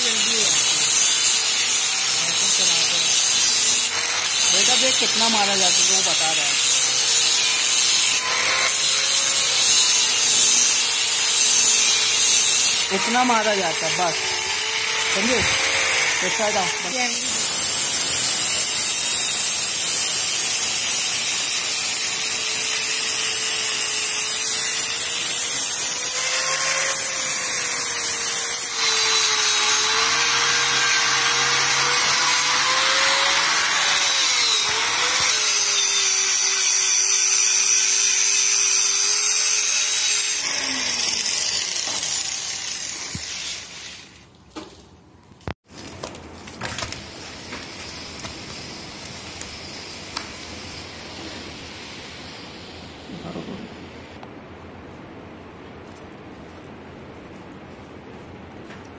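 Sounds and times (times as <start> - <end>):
angle grinder grinding metal: 0.0 - 44.2.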